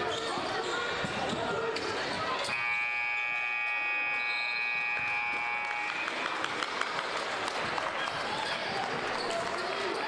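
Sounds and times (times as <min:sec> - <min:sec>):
noisy gym: 0:00.0 - 0:10.0
scoreboard horn buzzing: 0:02.5 - 0:06.5.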